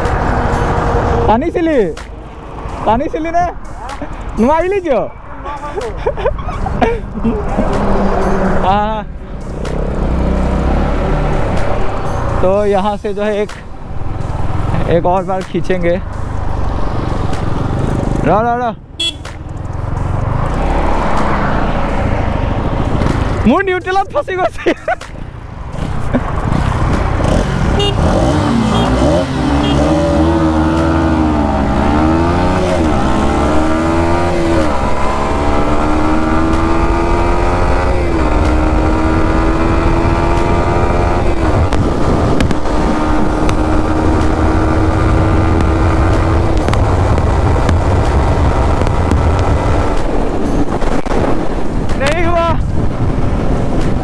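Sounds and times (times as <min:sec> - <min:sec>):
motorcycle engine accelerating: 0:25.7 - 0:51.2.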